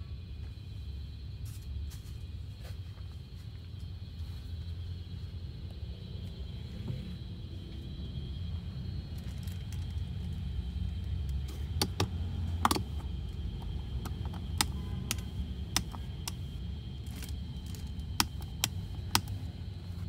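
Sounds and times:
steady low hum: 0.0 - 20.0
plastic switch clicks: 11.8 - 12.9, 14.0 - 16.4.

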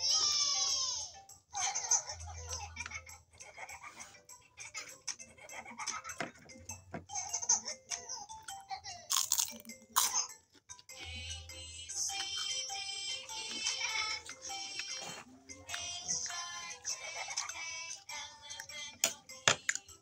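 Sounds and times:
background music: 0.0 - 20.0
crunchy food being chewed: 9.1 - 11.3, 11.9 - 18.8.

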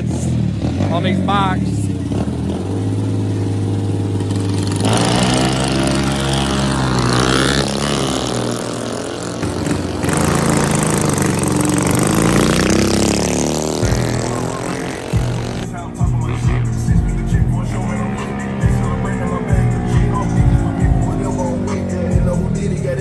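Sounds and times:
mini bike engines revving: 0.0 - 15.7.

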